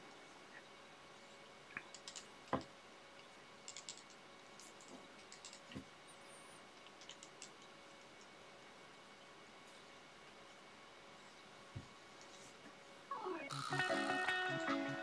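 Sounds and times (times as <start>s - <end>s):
small clicks and taps: 1.7s - 5.9s, 6.8s - 8.7s.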